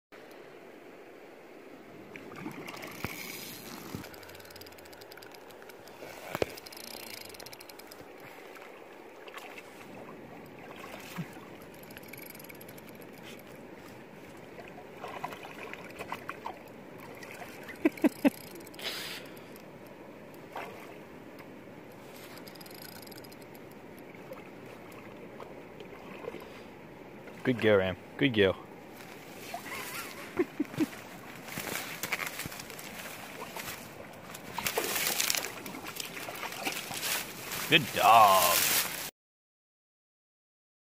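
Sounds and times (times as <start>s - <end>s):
splashes: 2.1s - 4.4s, 8.2s - 11.9s, 13.2s - 19.2s, 20.4s - 21.0s, 24.1s - 27.5s, 29.3s - 39.1s
dog paddling in water: 5.5s - 19.1s, 20.3s - 21.1s, 22.0s - 27.7s, 29.2s - 37.7s.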